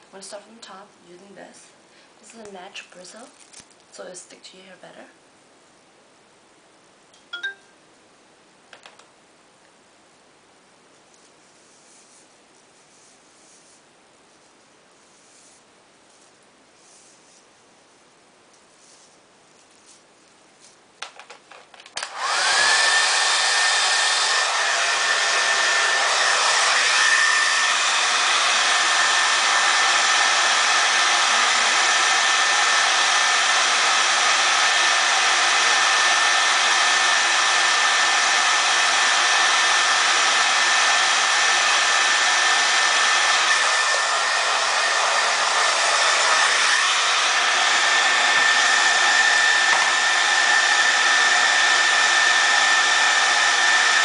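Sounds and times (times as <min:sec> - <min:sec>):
hair dryer running: 0:21.9 - 0:54.0.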